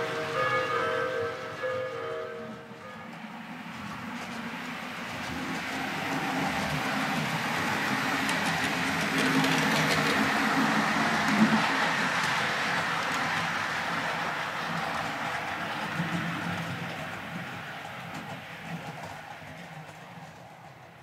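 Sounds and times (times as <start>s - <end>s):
model train whirring on track: 0.0s - 21.0s.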